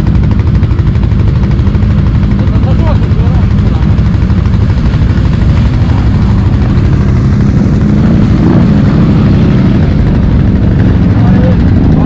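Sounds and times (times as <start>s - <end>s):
atv engines rumbling: 0.0s - 12.0s.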